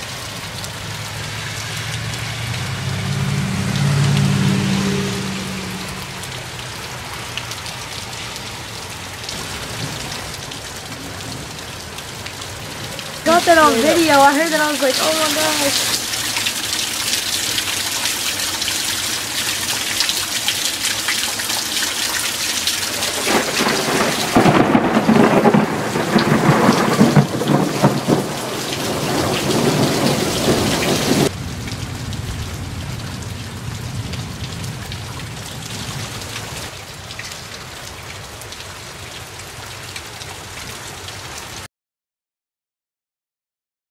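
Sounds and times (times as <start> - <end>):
rain falling: 0.0 - 41.7
thunder rumbling and crackling: 22.9 - 36.6.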